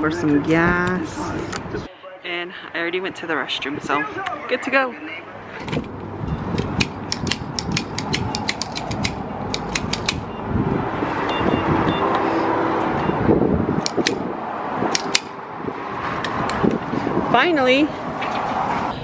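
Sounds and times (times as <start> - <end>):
fuel nozzle clicks and rattles: 5.6 - 10.3, 13.8 - 14.2, 14.9 - 15.4, 16.2 - 16.8
fuel pump short beeps: 6.2 - 6.6, 11.3 - 12.3, 13.0 - 13.2.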